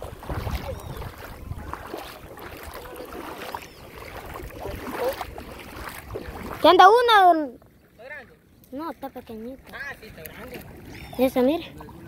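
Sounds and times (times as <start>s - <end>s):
wind on microphone: 0.0s - 6.7s
feet wading through water: 0.0s - 12.0s.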